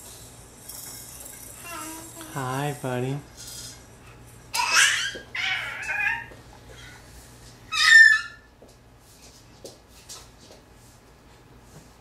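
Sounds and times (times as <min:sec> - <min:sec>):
toddler squealing: 0:04.6 - 0:06.3, 0:07.7 - 0:08.5.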